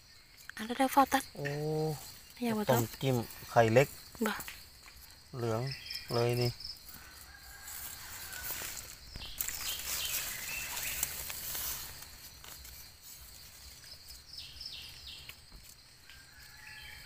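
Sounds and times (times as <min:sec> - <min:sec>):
knife scraping in soil and leaves: 0:07.1 - 0:14.2.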